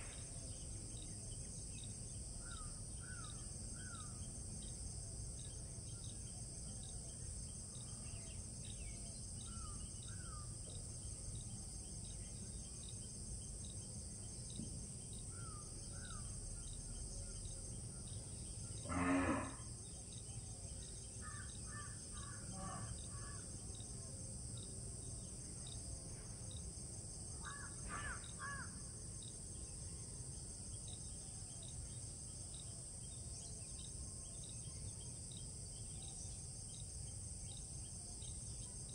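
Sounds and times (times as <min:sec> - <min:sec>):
high insect buzz: 0:18.8 - 0:19.9.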